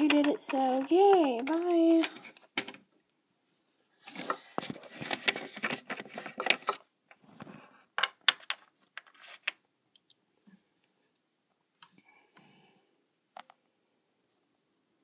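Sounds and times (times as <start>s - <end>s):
plastic toys clicking and knocking: 0.0s - 2.9s, 4.1s - 7.2s, 8.0s - 10.2s.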